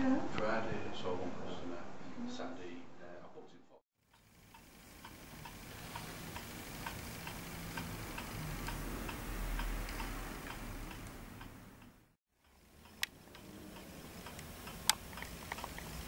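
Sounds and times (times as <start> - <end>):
steady regular ticking: 4.0 - 16.0.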